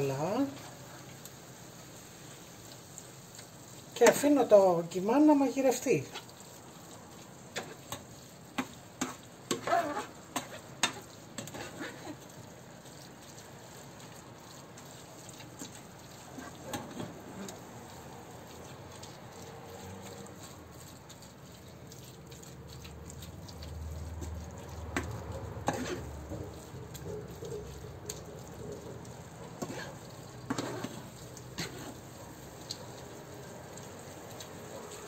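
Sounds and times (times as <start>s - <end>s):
meat sizzling in a frying pan: 0.0s - 35.0s
spoon scraping a pan: 7.5s - 13.4s, 14.8s - 17.6s, 22.8s - 33.0s.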